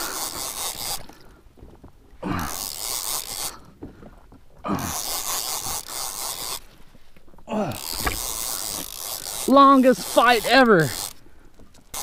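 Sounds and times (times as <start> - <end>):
low groan: 2.2 - 2.8, 4.6 - 5.3, 7.4 - 8.7.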